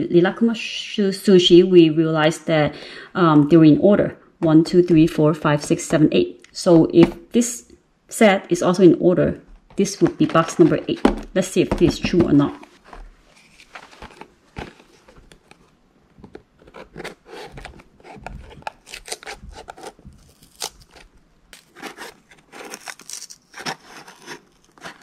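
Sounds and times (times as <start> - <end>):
box scraping against blade: 12.8 - 15.3, 16.6 - 25.0
scissors snipping cardboard: 16.6 - 21.0.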